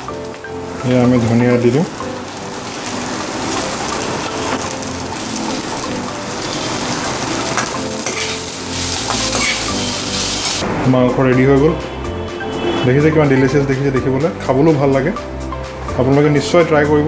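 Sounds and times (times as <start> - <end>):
chicken and onion sizzling in a wok: 0.0 - 10.6
metal spoon scraping and tapping pan: 7.5 - 9.8.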